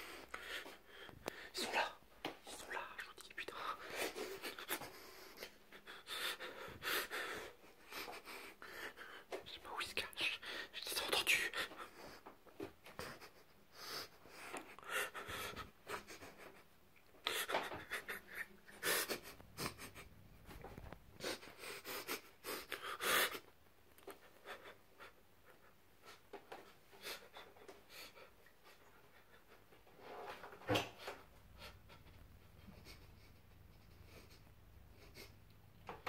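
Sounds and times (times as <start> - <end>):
person breathing heavily: 0.0 - 1.9, 3.5 - 9.4, 13.0 - 16.6.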